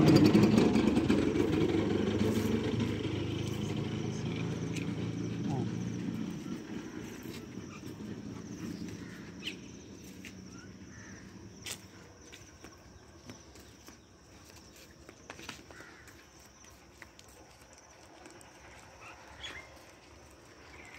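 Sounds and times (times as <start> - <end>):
low rumble: 0.0 - 11.6
insect trill: 2.7 - 13.0.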